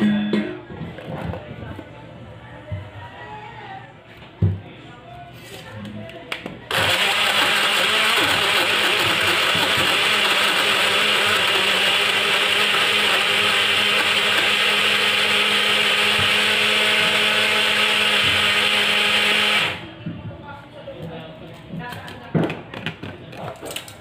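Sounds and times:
blender motor running: 6.7s - 19.8s.

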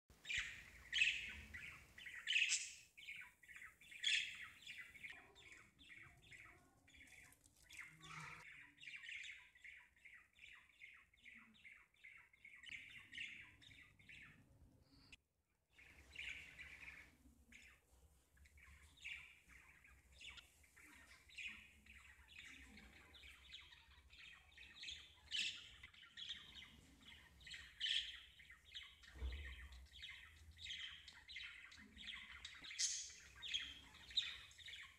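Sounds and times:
small birds chirping: 0.1s - 34.9s.

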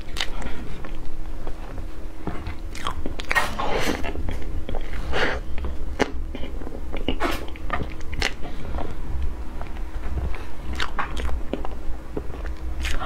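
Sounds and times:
wet mouth smacks and chewing: 5.6s - 8.9s, 10.7s - 13.0s.

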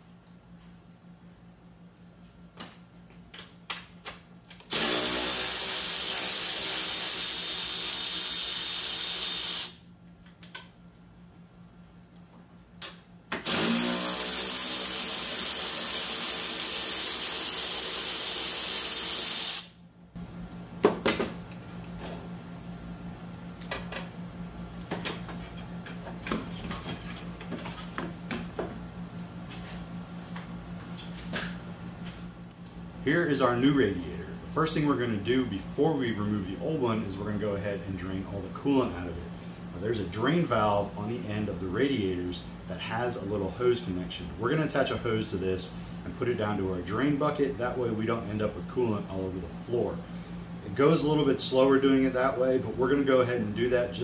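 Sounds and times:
cordless ratchet running: 4.6s - 9.8s, 13.4s - 19.8s.

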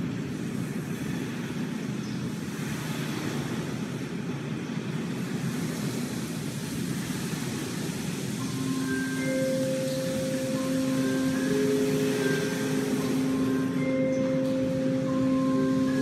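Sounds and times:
band held notes: 8.4s - 16.0s.

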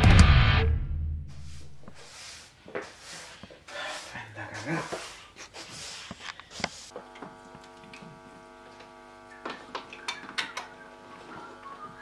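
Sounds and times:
guitar amplifier hum: 0.0s - 1.1s
push broom sweeping floor: 1.3s - 10.1s.

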